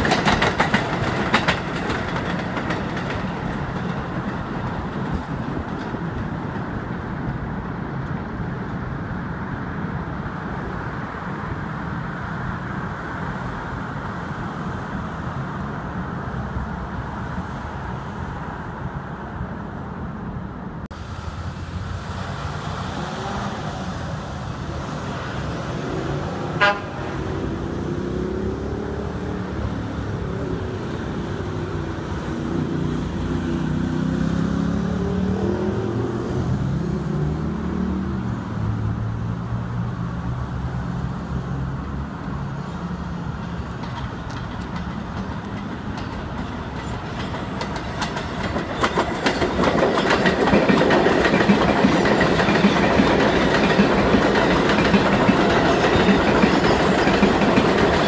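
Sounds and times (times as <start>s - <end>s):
elevated train clicking: 0.0s - 8.9s, 41.8s - 58.0s
road traffic: 0.0s - 58.0s
car horn toot: 26.6s - 27.1s.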